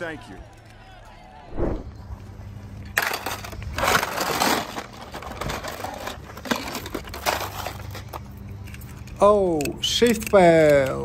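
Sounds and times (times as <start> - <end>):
toy cars crashing down: 2.9 - 7.9.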